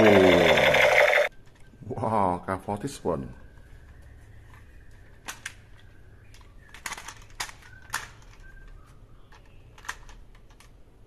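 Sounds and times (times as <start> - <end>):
plastic toy rifle clicks: 6.6 - 8.5.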